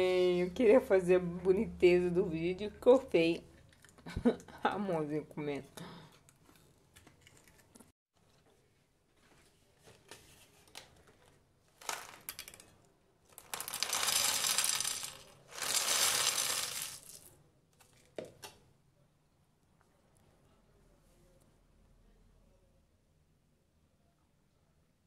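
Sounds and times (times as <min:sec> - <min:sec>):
popcorn clattering onto a plate: 0:11.8 - 0:17.3.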